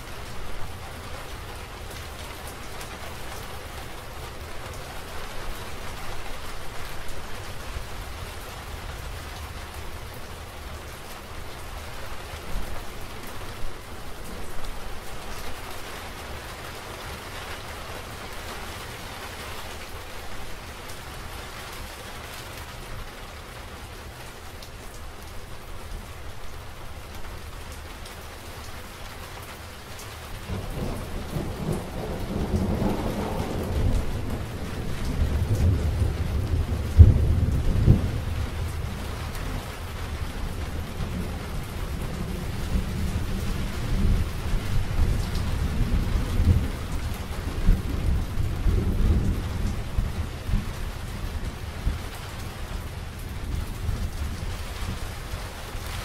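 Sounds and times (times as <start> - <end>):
steady rain: 0.0 - 56.0
thunder rumbling: 30.5 - 39.1, 40.6 - 52.2.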